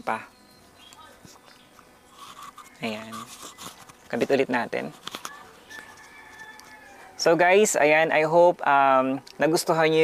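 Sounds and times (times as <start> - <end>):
lapel mic clicks and rubs: 2.1 - 6.8
faint rooster crow: 2.4 - 3.8, 5.2 - 7.5.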